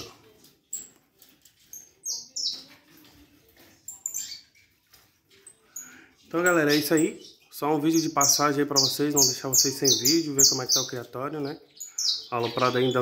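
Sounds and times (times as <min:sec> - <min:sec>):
finch chirping: 0:01.6 - 0:02.8, 0:05.7 - 0:13.0.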